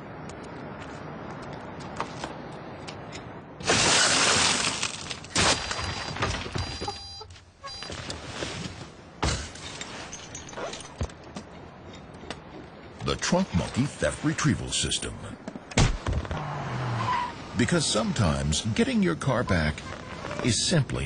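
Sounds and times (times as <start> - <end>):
glass shattering: 3.6 - 6.9, 9.2 - 11.0
short high beeps: 6.6 - 7.9.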